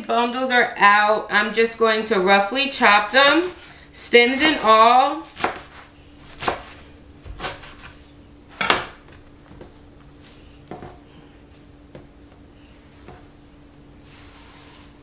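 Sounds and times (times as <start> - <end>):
knife chopping herbs on a board: 5.2 - 8.0.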